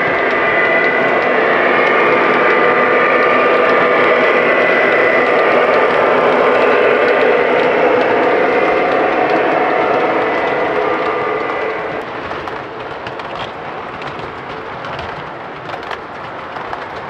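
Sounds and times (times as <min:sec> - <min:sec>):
steady high whine: 0:00.0 - 0:12.1
model locomotive diesel engine: 0:00.0 - 0:17.0
wheels rumbling on track: 0:00.0 - 0:17.0.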